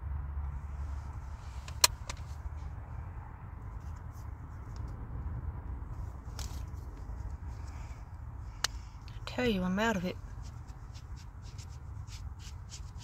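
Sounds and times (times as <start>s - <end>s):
wind buffeting a car: 0.0s - 13.0s.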